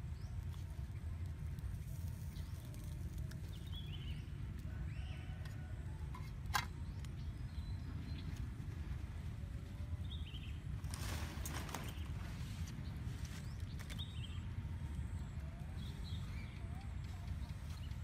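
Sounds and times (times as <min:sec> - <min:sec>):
steady low rumble: 0:00.0 - 0:18.0.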